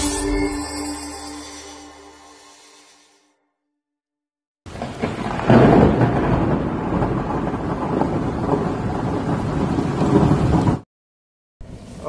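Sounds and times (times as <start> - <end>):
thunder rumble with crackle: 4.7 - 10.9
rain-like hiss: 11.6 - 12.0.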